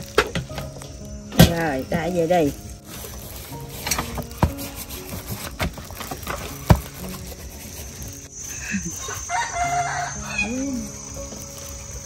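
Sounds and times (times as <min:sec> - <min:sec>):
chicken calling: 0:08.6 - 0:11.0.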